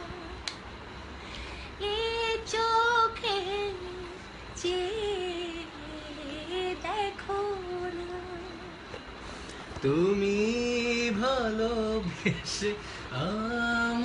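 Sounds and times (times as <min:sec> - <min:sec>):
person singing unaccompanied: 0:00.0 - 0:00.6, 0:01.8 - 0:08.9.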